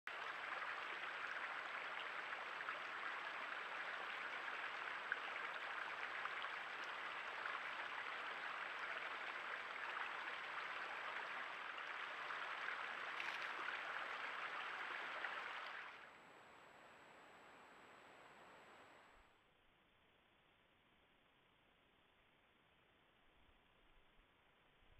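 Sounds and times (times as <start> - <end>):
creek water running: 0.1 - 16.2.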